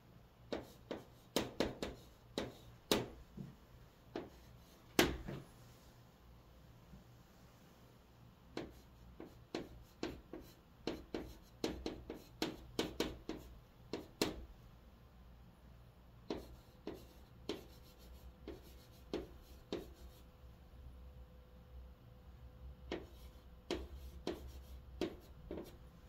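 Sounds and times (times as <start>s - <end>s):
chalk writing on chalkboard: 0.5s - 3.2s, 4.1s - 5.4s, 8.6s - 14.4s, 16.3s - 20.3s, 22.9s - 25.8s.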